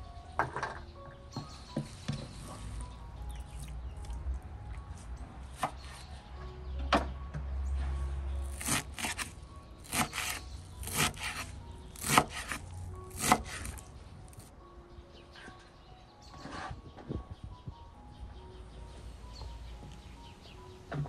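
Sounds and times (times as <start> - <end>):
knife chopping on wooden board: 8.5 - 13.8.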